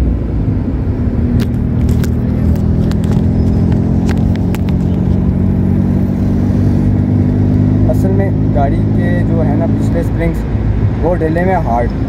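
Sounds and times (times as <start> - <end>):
car engine from cabin: 0.0 - 12.0
sharp clicks and knocks: 1.4 - 5.2.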